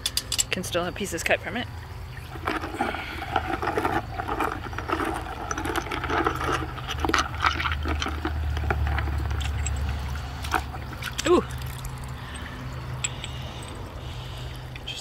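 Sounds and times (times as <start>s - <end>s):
hand sloshing water in a bucket: 2.1s - 13.8s.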